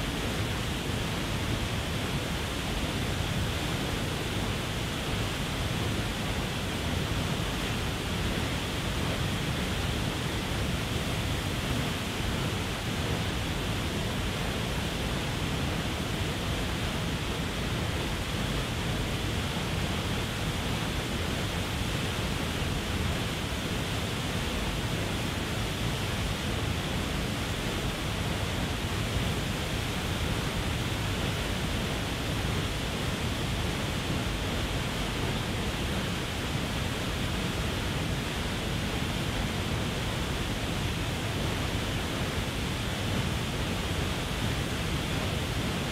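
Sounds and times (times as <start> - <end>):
waterfall rushing: 0.1 - 45.9.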